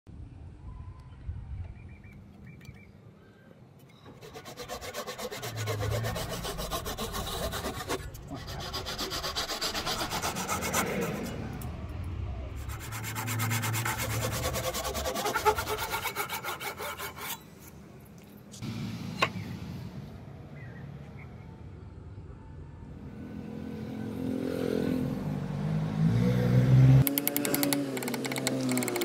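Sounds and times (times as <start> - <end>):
handsaw cutting wood: 4.2 - 11.4, 12.6 - 17.4.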